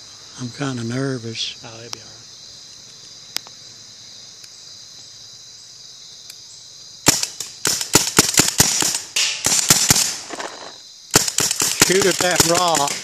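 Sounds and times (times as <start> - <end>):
crickets chirring: 0.0 - 13.0
paintball gun firing: 7.0 - 13.0.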